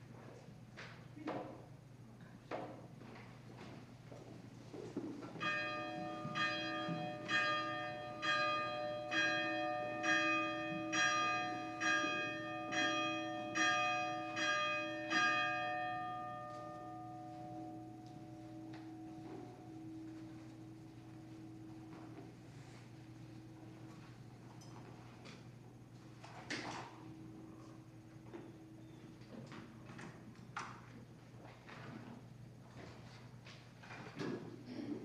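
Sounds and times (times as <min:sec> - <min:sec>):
church bell ringing: 0:05.3 - 0:22.2.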